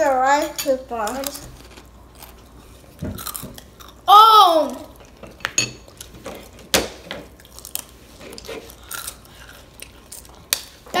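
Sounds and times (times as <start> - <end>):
child crying out: 4.1 - 4.8.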